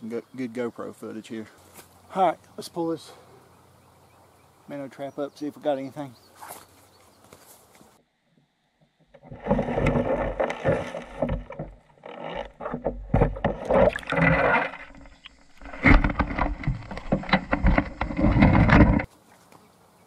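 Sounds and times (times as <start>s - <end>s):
water sloshing and splashing: 9.2s - 19.1s.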